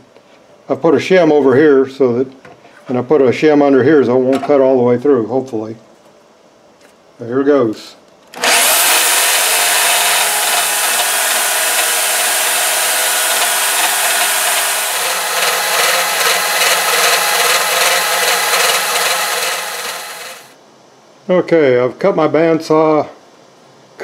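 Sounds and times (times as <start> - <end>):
bandsaw cutting metal: 8.4 - 20.6.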